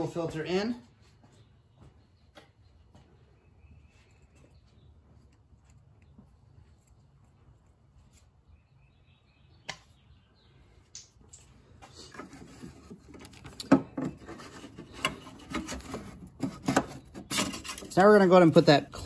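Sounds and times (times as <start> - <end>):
plastic rubbing and scraping: 11.8 - 19.0.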